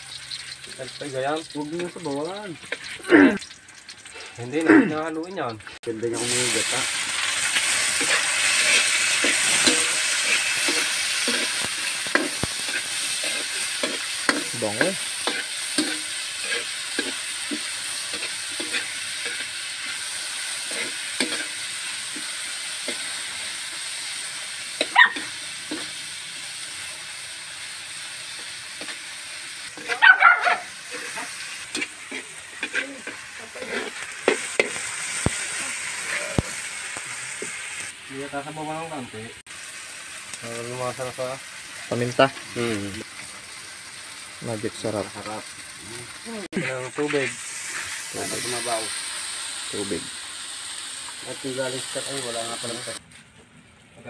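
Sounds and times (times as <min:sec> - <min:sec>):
vegetables sizzling in a wok: 0:00.0 - 0:54.0
metal ladle scraping pan: 0:07.2 - 0:23.1, 0:29.6 - 0:36.5.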